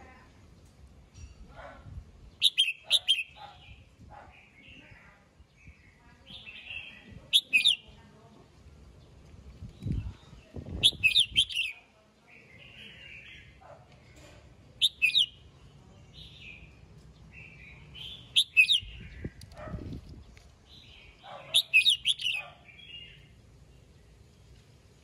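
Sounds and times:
bird singing whistled notes: 2.4 - 3.4, 6.4 - 7.8, 10.2 - 11.8, 14.8 - 15.4, 17.4 - 19.4, 20.9 - 23.2
bird chattering: 2.4 - 3.8, 6.3 - 7.9, 10.8 - 11.8, 14.8 - 15.4, 18.0 - 19.5, 21.0 - 23.2.

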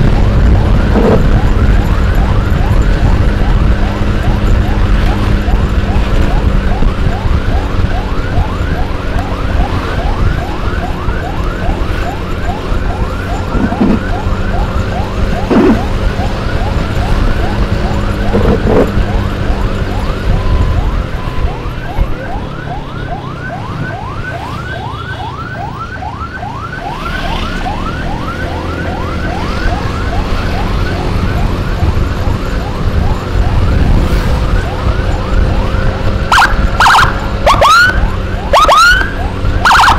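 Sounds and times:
wind noise: 0.0 - 22.2, 30.1 - 39.9
emergency siren yelping: 0.0 - 39.9
motorcycle road rumble: 0.0 - 39.9.

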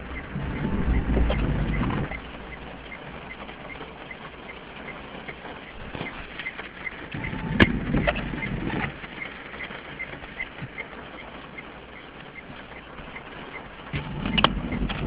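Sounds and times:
faint regular ticking: 0.0 - 15.0
rain pattering on windscreen: 0.0 - 15.0
windscreen wiper rubbing: 0.0 - 15.0.

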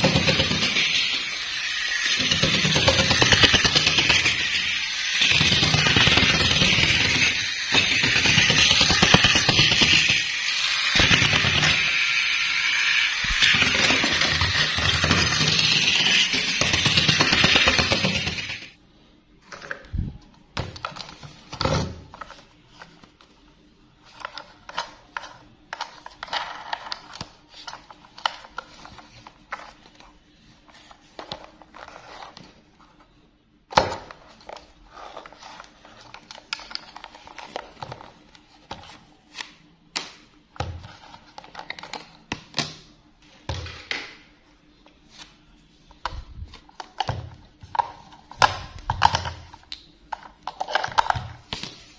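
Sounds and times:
plastic toy clicks and rattles: 0.0 - 18.7.

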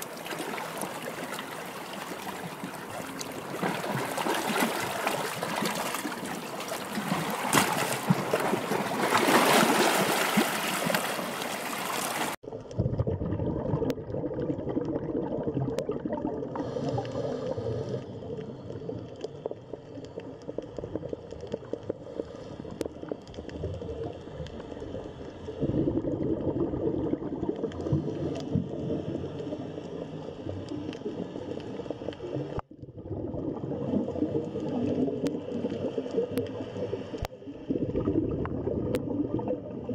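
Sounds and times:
rushing trickling water: 0.0 - 12.4
muffled underwater water noise: 0.0 - 39.9.

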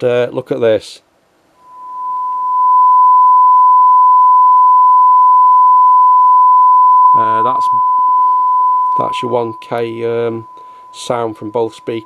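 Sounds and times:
sine wave test tone: 1.6 - 12.0.

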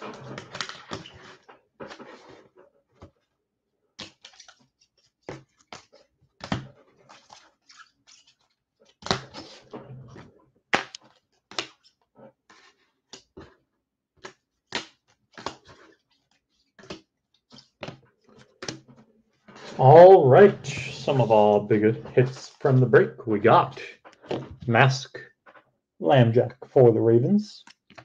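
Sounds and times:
cards and plastic holders handled: 4.0 - 9.6, 10.7 - 18.9.

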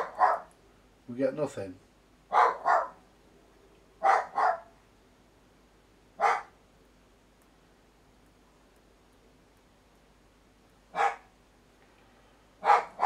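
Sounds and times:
dog barking: 0.0 - 0.5, 2.3 - 3.0, 4.0 - 4.8, 6.2 - 6.6, 10.9 - 11.3, 12.6 - 13.0.

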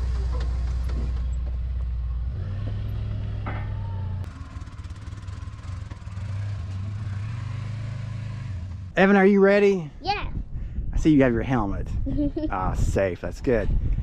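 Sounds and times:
utility vehicle engine running: 0.0 - 9.0.

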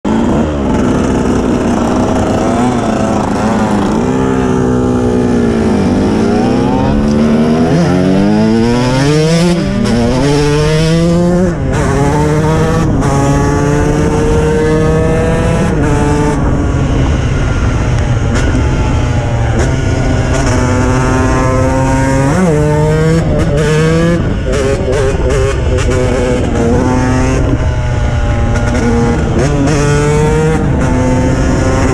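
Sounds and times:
two-stroke engine revving: 0.1 - 31.9.

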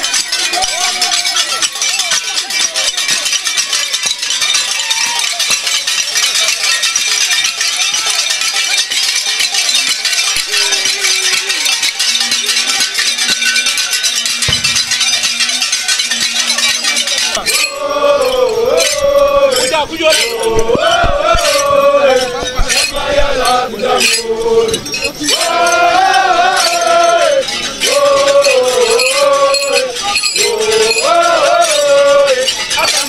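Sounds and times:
metallic clinking and jingling: 0.0 - 33.0
scattered voices: 0.0 - 33.0
men chanting loudly: 16.8 - 33.0.

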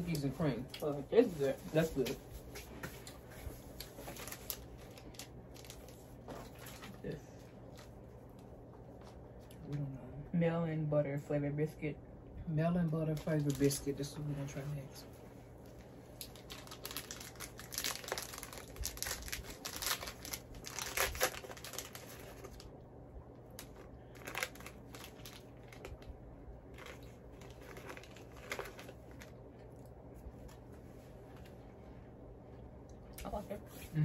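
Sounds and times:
plastic packet crinkling: 3.0 - 8.0, 13.1 - 14.2, 16.2 - 22.8, 23.5 - 29.7.

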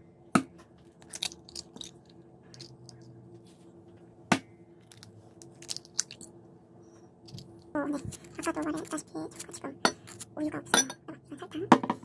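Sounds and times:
eggshells cracking: 1.0 - 3.0, 4.8 - 6.4.

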